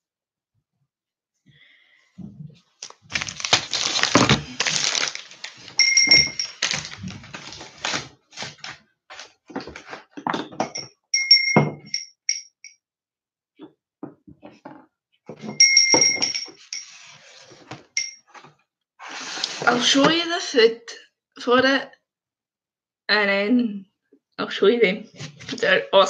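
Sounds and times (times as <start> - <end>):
objects rustling and thudding: 2.2 - 10.8.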